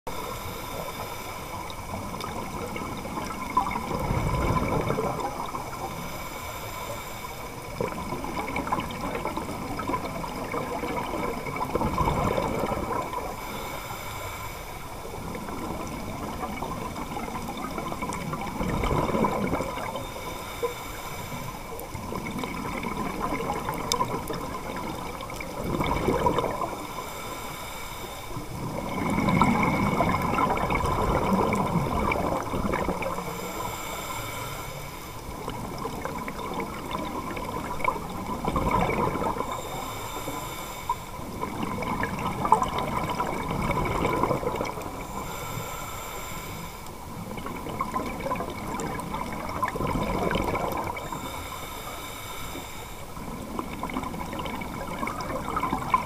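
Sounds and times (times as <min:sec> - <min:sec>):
gurgling exhaled bubbles underwater: 0:00.1 - 0:13.8, 0:14.7 - 0:27.4, 0:28.3 - 0:56.0
regulator inhalation hiss: 0:06.0 - 0:07.7, 0:13.3 - 0:14.9, 0:20.0 - 0:21.8, 0:26.8 - 0:28.5, 0:33.2 - 0:35.2, 0:39.5 - 0:41.3, 0:45.0 - 0:47.0, 0:51.0 - 0:53.3.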